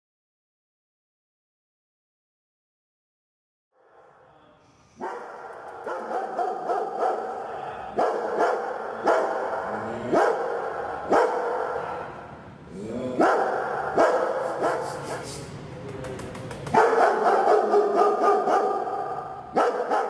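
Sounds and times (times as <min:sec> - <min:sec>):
dog barking in kennel: 0:05.0 - 0:12.0, 0:13.2 - 0:15.2, 0:16.7 - 0:20.0.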